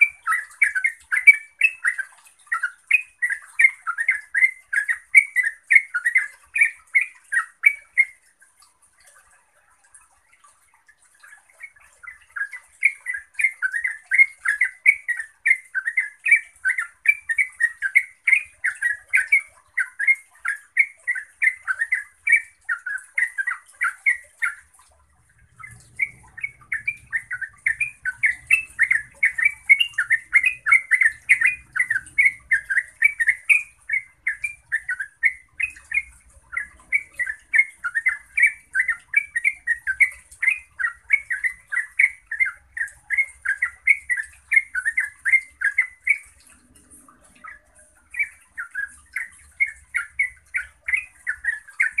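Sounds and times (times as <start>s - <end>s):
bulbul singing bubbling warbled notes: 12.0s - 52.0s.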